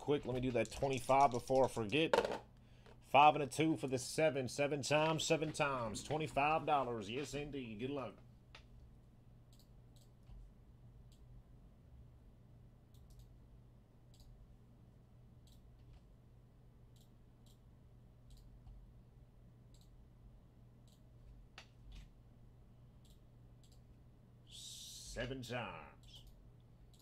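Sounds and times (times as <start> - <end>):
low steady hum: 0.0 - 27.0
computer mouse clicks: 9.5 - 10.4, 12.9 - 13.4, 14.1 - 14.3, 15.4 - 16.1, 18.3 - 18.8, 19.7 - 20.0, 23.0 - 23.9, 26.0 - 27.0.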